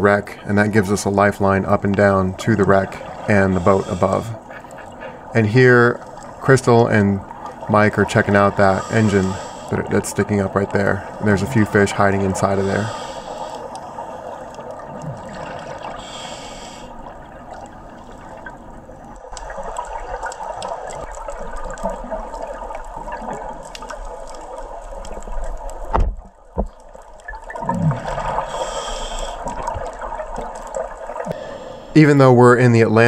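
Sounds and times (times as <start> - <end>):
muffled underwater rush: 0.0 - 33.0
bubbling of exhaled air: 2.9 - 5.4, 8.3 - 25.7, 27.2 - 32.0.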